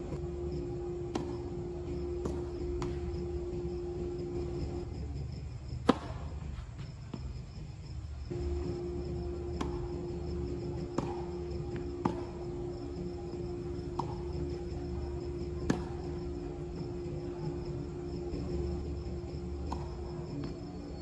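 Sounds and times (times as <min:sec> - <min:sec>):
insects chirping: 0:00.0 - 0:21.0
steady hum: 0:00.0 - 0:21.0
tennis ball struck by rackets: 0:00.2 - 0:04.8, 0:05.8 - 0:06.4, 0:08.3 - 0:18.9, 0:19.5 - 0:20.6.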